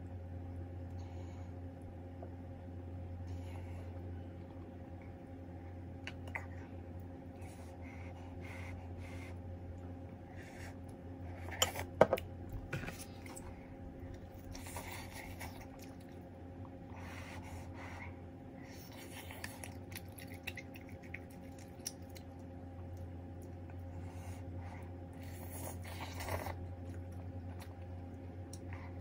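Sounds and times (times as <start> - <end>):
steady low hum: 0.0 - 29.0
chewing: 10.7 - 17.1, 18.7 - 29.0.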